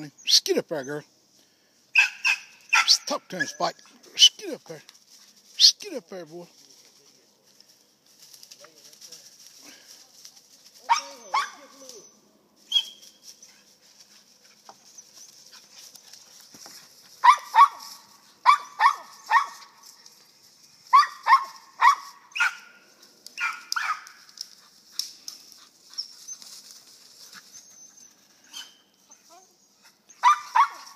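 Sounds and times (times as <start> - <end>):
dog barking: 2.0 - 3.6, 10.9 - 11.7, 17.2 - 19.7, 20.9 - 22.7, 23.4 - 24.2, 30.2 - 30.9.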